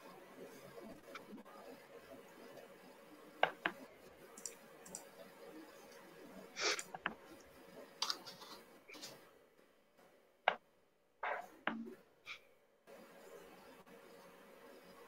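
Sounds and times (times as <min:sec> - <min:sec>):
faint room hiss: 0:00.0 - 0:15.0
small clicks and taps: 0:04.4 - 0:05.1.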